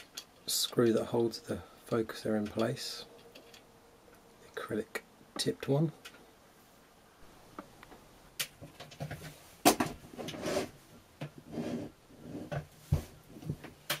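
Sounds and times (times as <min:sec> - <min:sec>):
rubbing and scraping: 0:10.0 - 0:10.8, 0:11.4 - 0:13.6.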